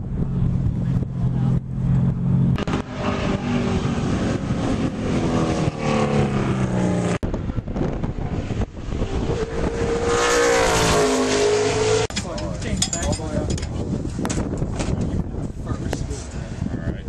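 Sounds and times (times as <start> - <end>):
race car engine at speed: 0.0 - 12.1.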